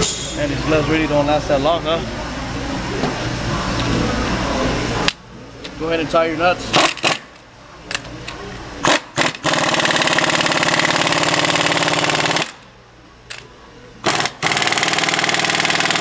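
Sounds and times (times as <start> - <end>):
impact wrench hammering: 6.7 - 8.1, 8.8 - 12.7, 14.0 - 16.0.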